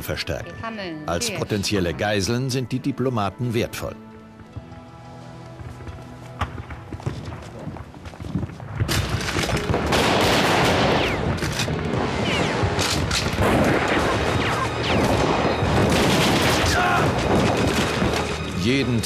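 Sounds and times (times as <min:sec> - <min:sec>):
rifle gunfire: 0:08.8 - 0:11.7, 0:12.4 - 0:18.2.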